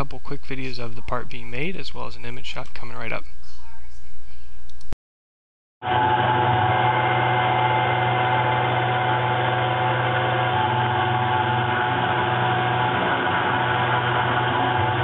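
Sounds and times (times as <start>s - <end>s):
milling machine humming: 5.8s - 15.0s
whining tones: 5.8s - 15.0s.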